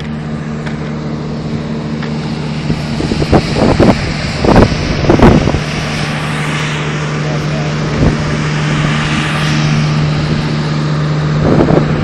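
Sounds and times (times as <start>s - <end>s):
low engine hum: 0.0s - 12.0s
wind buffeting microphone: 2.5s - 12.0s.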